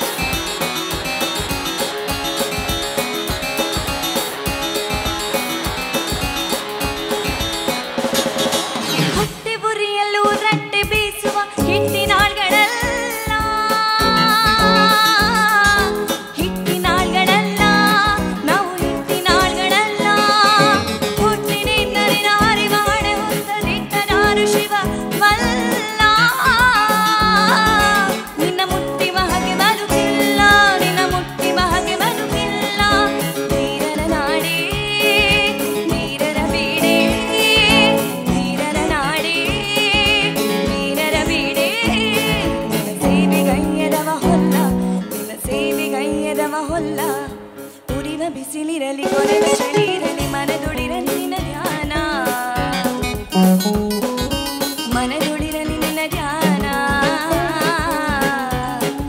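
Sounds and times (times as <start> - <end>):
electronic keyboard accompaniment: 0.0 - 9.5, 11.6 - 48.2
percussion beat: 0.0 - 9.5, 10.2 - 48.1, 49.1 - 59.0
woman singing into a microphone: 9.1 - 53.8, 54.6 - 59.0.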